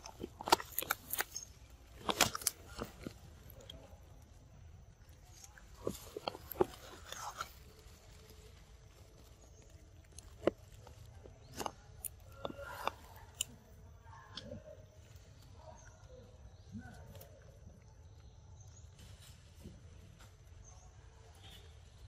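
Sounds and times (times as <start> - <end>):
stems and leaves snapping: 0.0 - 4.4
leaves rustling: 5.0 - 11.1.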